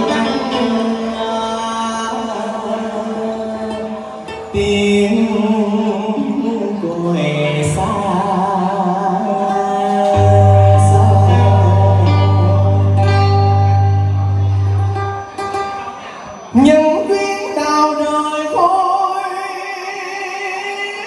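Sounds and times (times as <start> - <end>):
man singing into microphone: 0.0 - 14.4, 16.5 - 21.0
amplified backing music: 0.0 - 17.7
low steady bass tone: 10.2 - 15.2.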